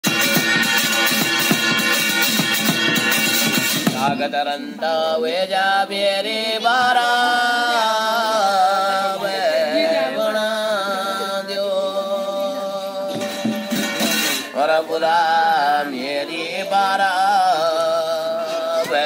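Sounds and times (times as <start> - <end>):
man chanting: 3.9 - 19.0.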